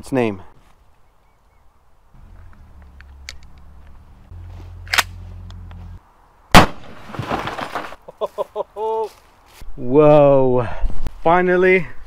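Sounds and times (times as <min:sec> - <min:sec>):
shotgun shot: 0:06.5 - 0:07.4.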